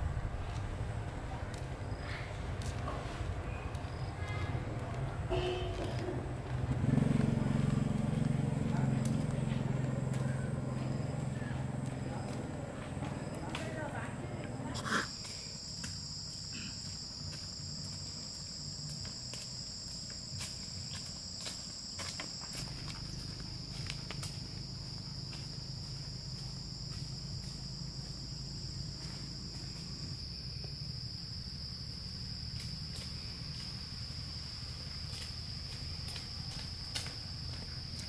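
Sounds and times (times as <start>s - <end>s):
low rumble: 0.0s - 5.3s
high-pitched insect drone: 13.2s - 38.0s.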